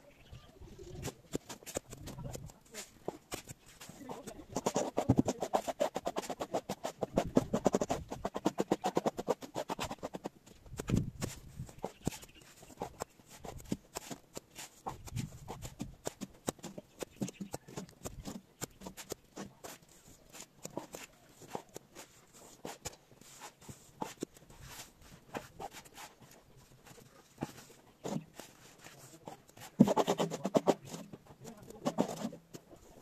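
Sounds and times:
plastering tools scraping and tapping: 0.8s - 33.0s.

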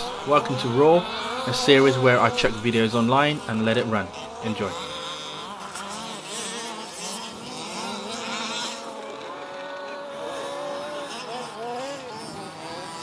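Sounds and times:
rc buggy engines buzzing: 0.0s - 13.0s.

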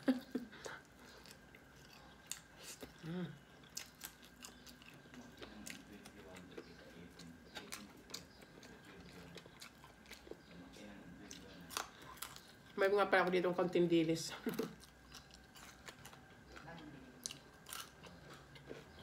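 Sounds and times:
wet chewing: 0.5s - 13.3s, 14.4s - 19.0s
person humming: 3.0s - 3.4s.

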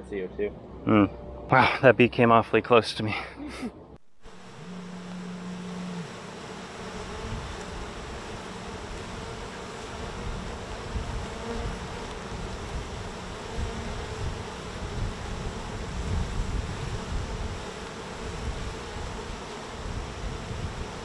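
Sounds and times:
single bee buzzing close: 4.2s - 21.0s
swarm of bees humming: 4.2s - 21.0s.

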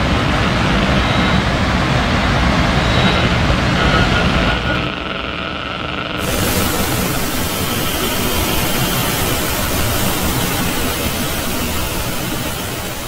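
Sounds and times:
loud static hiss: 0.0s - 13.0s.

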